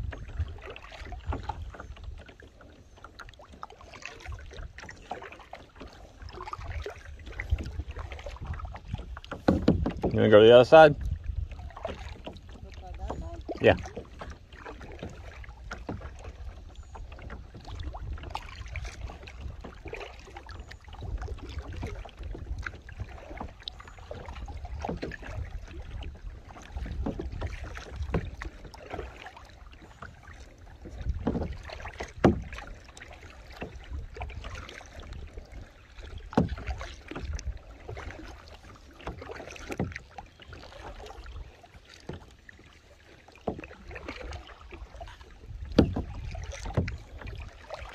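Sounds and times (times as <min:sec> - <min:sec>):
low wind rumble on microphone: 0:00.0 - 0:02.2, 0:06.3 - 0:14.4, 0:24.2 - 0:28.4, 0:30.7 - 0:32.6, 0:45.3 - 0:47.6
paddle strokes in water: 0:00.0 - 0:47.9
sharp knocks: 0:09.4 - 0:10.2.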